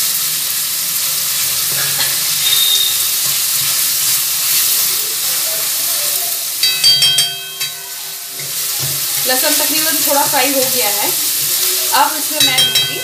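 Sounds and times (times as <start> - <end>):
garlic sizzling in hot oil: 0.0 - 13.0
spatula clanking on metal pan: 1.6 - 4.8, 6.6 - 13.0.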